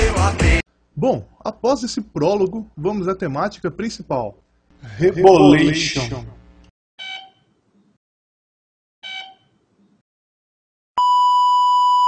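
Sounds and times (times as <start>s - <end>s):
steady electronic beep tone: 11.0s - 12.0s.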